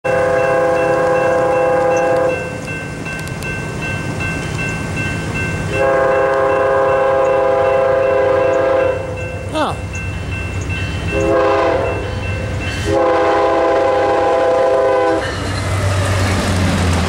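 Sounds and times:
locomotive air horn blasts: 0:00.1 - 0:02.5, 0:05.7 - 0:09.2, 0:11.1 - 0:12.0, 0:12.8 - 0:15.3.

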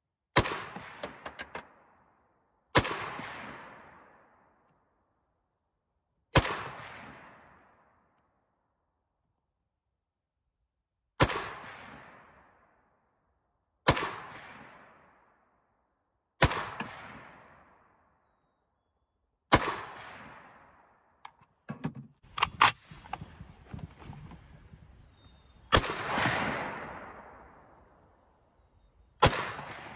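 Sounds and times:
rifle shots echoing: 0:00.4 - 0:01.8, 0:16.4 - 0:17.4, 0:25.7 - 0:27.8, 0:29.2 - 0:29.9.

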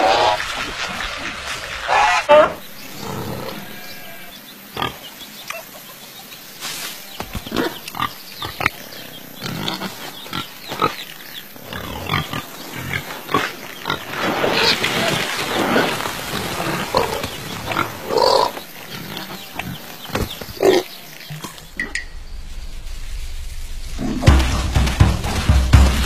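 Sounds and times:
pigs grunting: 0:07.3 - 0:21.6.

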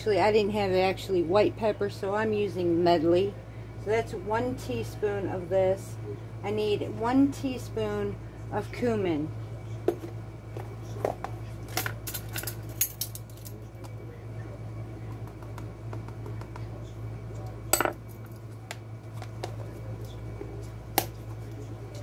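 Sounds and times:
low steady hum: 0:00.0 - 0:22.0
metal spoons clinking: 0:17.8 - 0:18.0.

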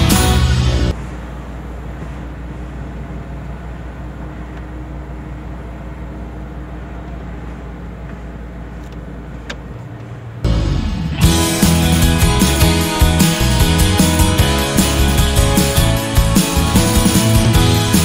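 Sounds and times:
music: 0:00.0 - 0:00.9, 0:10.5 - 0:18.0
diesel truck engine running: 0:00.0 - 0:18.0
road noise: 0:00.0 - 0:18.0.

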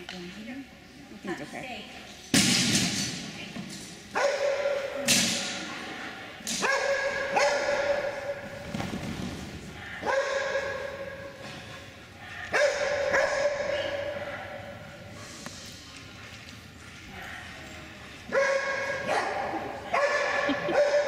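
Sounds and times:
dog barking: 0:04.2 - 0:05.0, 0:06.6 - 0:08.4, 0:09.8 - 0:11.1, 0:12.2 - 0:14.7, 0:18.3 - 0:21.0.

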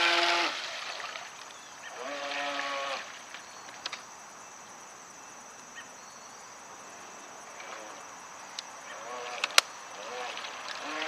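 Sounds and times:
faint clicks: 0:03.3 - 0:04.1, 0:07.5 - 0:08.7, 0:09.3 - 0:09.7.

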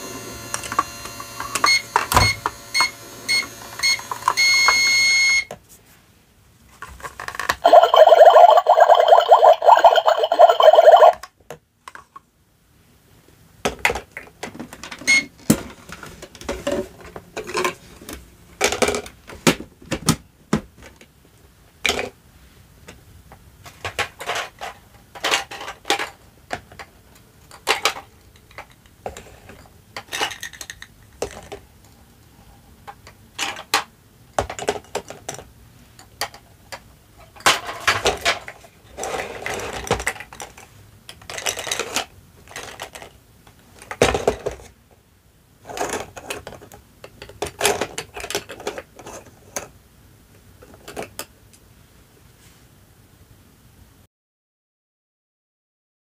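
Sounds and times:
electronic toy tone: 0:01.6 - 0:05.5, 0:07.6 - 0:11.2
plastic toy dishes clattering: 0:06.8 - 0:11.2, 0:23.7 - 0:31.6, 0:32.9 - 0:44.8, 0:45.6 - 0:49.7.

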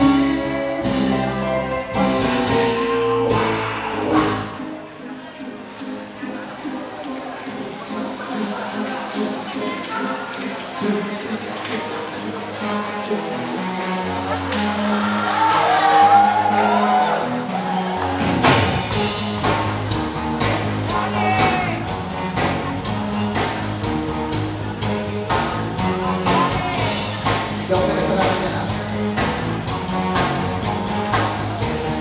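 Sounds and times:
live rock band playing: 0:00.0 - 0:06.2, 0:13.6 - 0:32.0
drum hit: 0:18.4 - 0:21.8.

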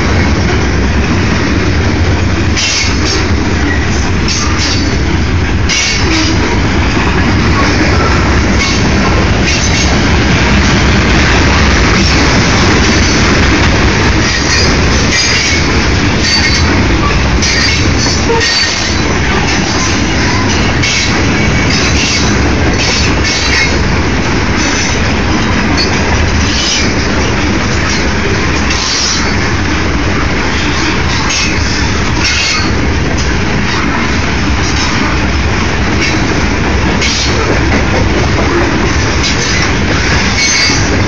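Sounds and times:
train wheels rumbling on rail: 0:00.0 - 0:41.0
high-pitched wheel squeals: 0:16.2 - 0:18.9.

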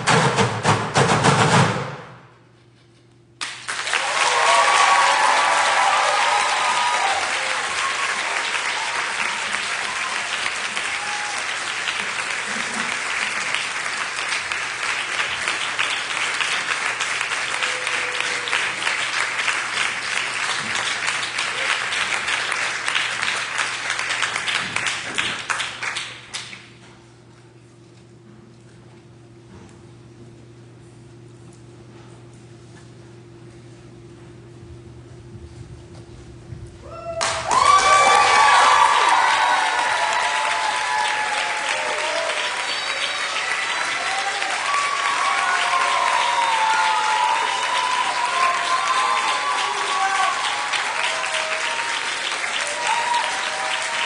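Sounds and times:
percussion hits: 0:00.0 - 0:02.3
audience applauding: 0:03.4 - 0:26.7, 0:37.1 - 0:54.0.

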